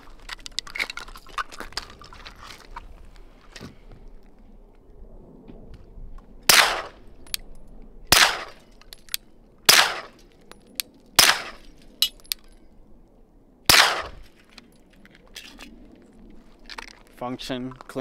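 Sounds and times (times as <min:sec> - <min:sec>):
suppressed pistol shots: 0:06.5 - 0:07.0, 0:08.1 - 0:08.6, 0:09.7 - 0:10.2, 0:11.2 - 0:11.6, 0:13.7 - 0:14.2.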